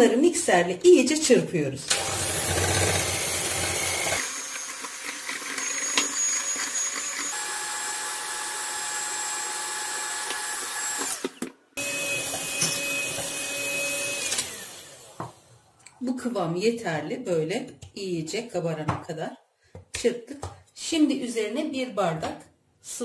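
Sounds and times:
electric mixer motor whine: 1.9 - 15.7.

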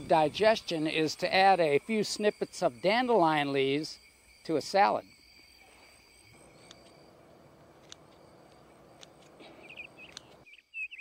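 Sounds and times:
faint insect trilling: 0.0 - 11.0
bird chirping: 5.4 - 11.0.

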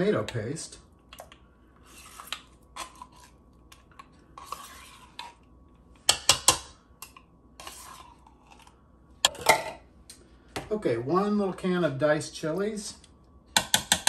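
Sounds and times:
spoon scraping a can: 1.8 - 5.5, 7.6 - 8.8.

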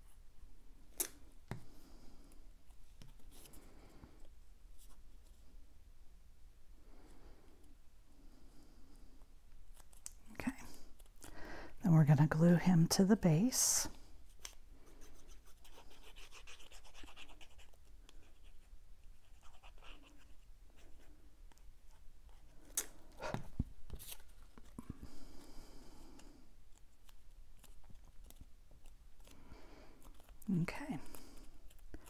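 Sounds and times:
paper rubbing and scratching: 14.4 - 21.1.

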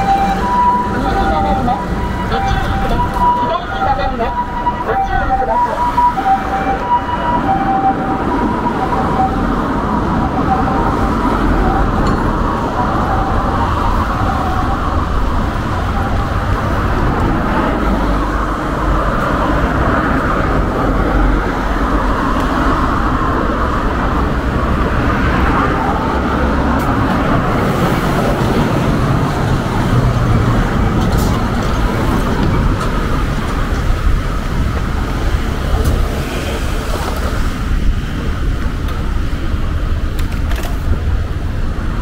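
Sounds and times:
road traffic: 0.0 - 42.0.

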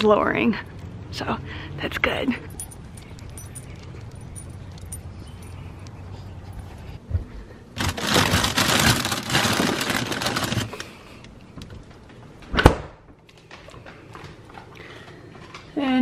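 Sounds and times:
plastic bag crinkling: 7.8 - 11.0.

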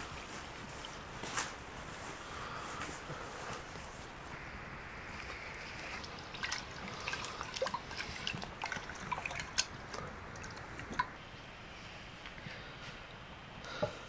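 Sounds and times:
liquid gurgling and dripping: 3.6 - 11.2.

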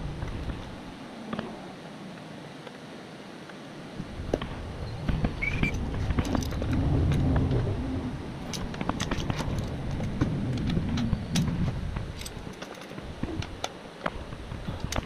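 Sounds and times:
low rumble: 4.0 - 13.6
short high squeak: 5.4 - 5.8
metal tools clinking on bolt: 12.2 - 13.0.

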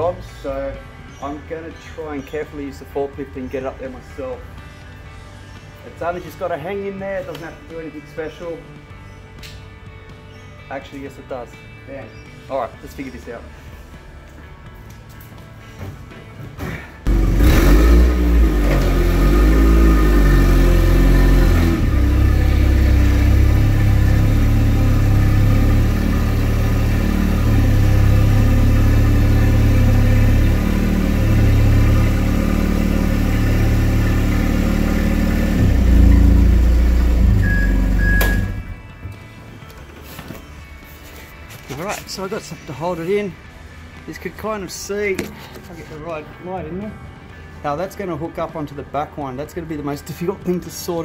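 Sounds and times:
forklift engine revving: 17.0 - 38.8.

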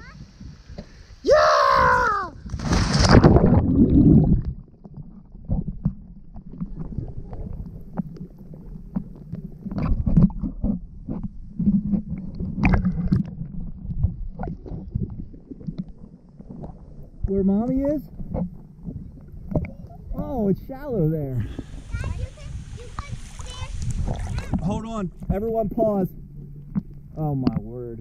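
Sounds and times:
water rushing on microphone: 0.0 - 28.0
river water sloshing and gurgling: 2.4 - 17.2, 21.5 - 25.4.

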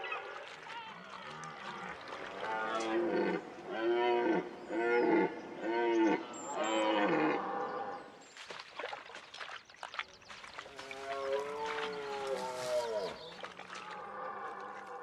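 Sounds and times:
soft splashes: 0.0 - 3.4, 8.2 - 15.0.

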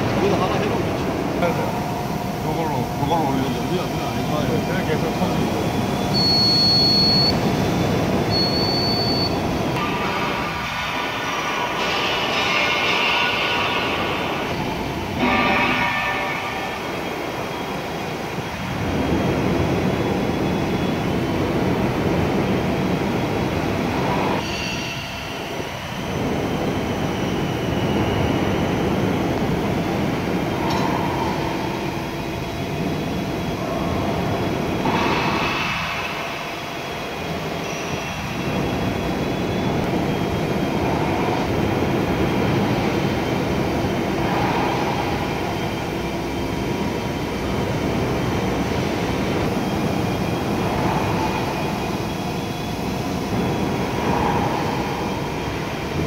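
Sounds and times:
faint whining tones: 0.0 - 56.0
hydraulic oil pump running: 0.0 - 56.0.

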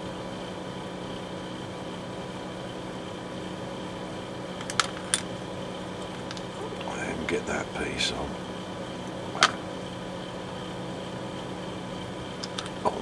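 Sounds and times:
steady mechanical hum: 0.0 - 13.0
sharp clicks: 12.4 - 12.8.

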